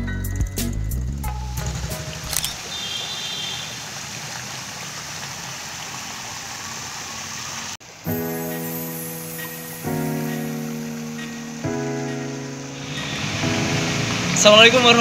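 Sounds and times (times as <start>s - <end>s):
piano-like music: 0.0s - 2.4s, 8.0s - 15.0s
fountain jets splashing: 1.5s - 15.0s.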